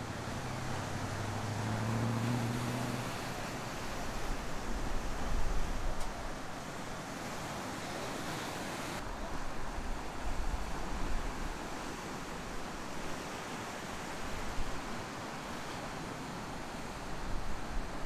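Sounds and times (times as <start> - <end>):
wind rumble on microphone: 0.0 - 6.5
ocean surf breaking: 0.0 - 9.1.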